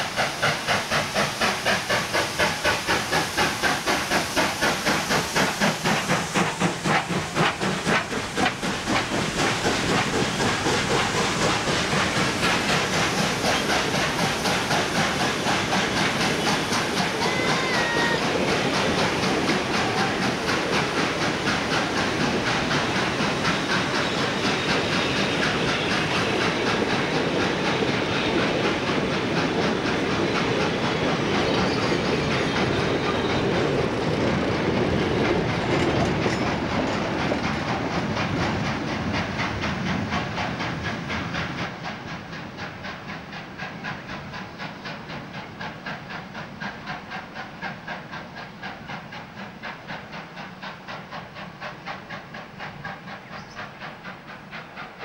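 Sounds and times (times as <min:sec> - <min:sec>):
steam locomotive exhaust beating: 0:00.0 - 0:55.0
carriages clattering over rail joints: 0:05.8 - 0:41.7.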